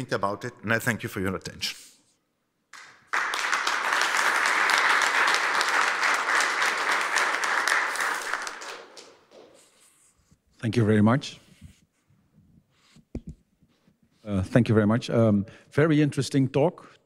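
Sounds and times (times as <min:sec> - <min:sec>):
audience applauding: 0:02.7 - 0:09.5.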